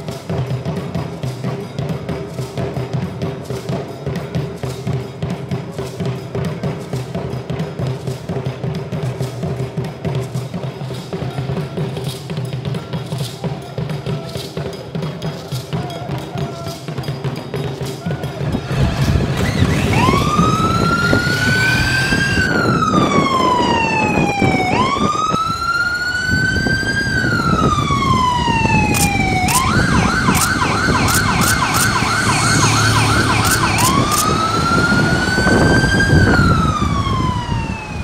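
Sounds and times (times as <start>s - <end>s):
vehicle engines rumbling: 17.9s - 38.0s
police siren wailing and yelping: 18.7s - 38.0s.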